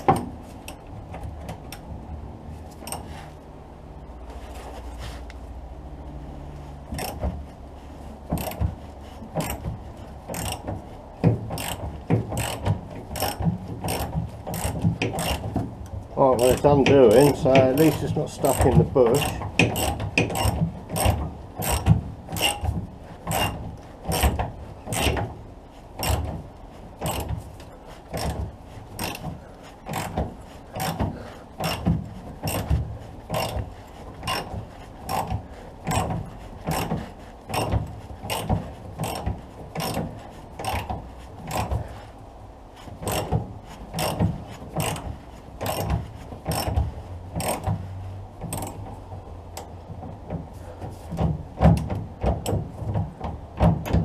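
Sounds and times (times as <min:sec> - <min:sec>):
ratchet spanner clicking: 0:02.8 - 0:03.1, 0:06.9 - 0:07.2, 0:08.3 - 0:08.7, 0:09.4 - 0:15.7, 0:16.3 - 0:22.7, 0:23.3 - 0:25.3, 0:26.0 - 0:26.4, 0:27.0 - 0:27.4, 0:29.0 - 0:29.3, 0:29.9 - 0:33.6, 0:34.2 - 0:37.7, 0:38.3 - 0:41.8, 0:43.0 - 0:43.4, 0:44.0 - 0:46.8, 0:47.4 - 0:47.7, 0:48.5 - 0:48.9.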